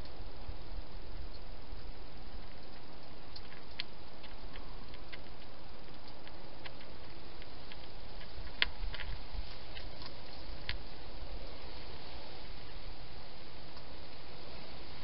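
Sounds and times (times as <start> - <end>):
low hiss: 0.0 - 15.0
hedgehog chewing: 1.1 - 12.6.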